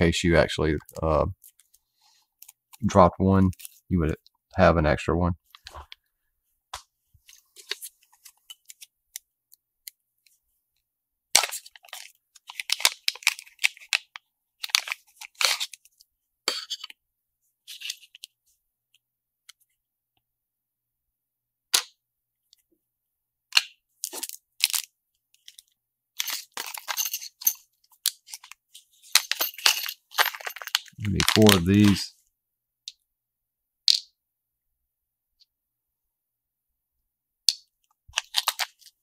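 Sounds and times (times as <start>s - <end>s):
plastic bags crinkling: 29.3s - 32.0s, 38.1s - 39.0s.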